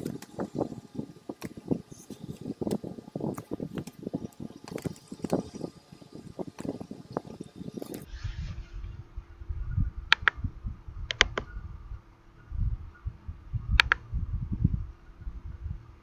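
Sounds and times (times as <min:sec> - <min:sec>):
faint steady hum: 0:00.0 - 0:16.0
low rumbling noise: 0:00.0 - 0:16.0
computer mouse clicks: 0:01.3 - 0:05.7, 0:06.4 - 0:08.1, 0:10.1 - 0:10.4, 0:11.1 - 0:11.5, 0:13.8 - 0:14.0.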